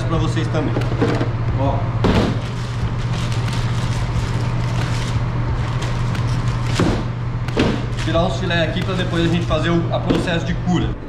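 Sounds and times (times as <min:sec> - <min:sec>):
low mechanical hum: 0:00.0 - 0:11.0
fish fillet knocking into crate: 0:02.0 - 0:02.4, 0:06.7 - 0:08.0
plastic bag rustling: 0:02.1 - 0:09.7.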